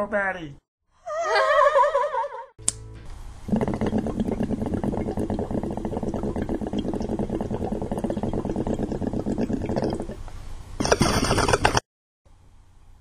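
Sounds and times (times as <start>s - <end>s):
water gurgling in a bong: 3.5s - 11.8s.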